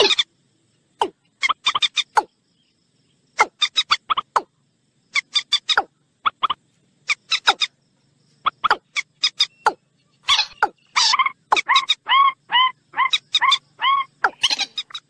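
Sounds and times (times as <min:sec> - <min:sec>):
moorhen calls: 0:00.0 - 0:00.3, 0:08.4 - 0:15.0.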